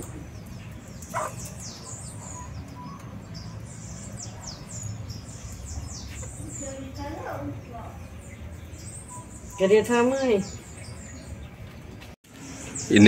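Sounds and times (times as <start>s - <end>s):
chicks peeping: 0.0s - 13.0s.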